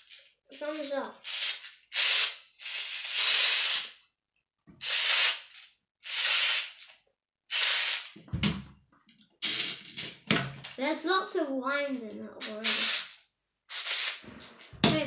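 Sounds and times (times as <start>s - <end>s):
wind-up toy ratcheting clicks: 12.4s - 14.2s.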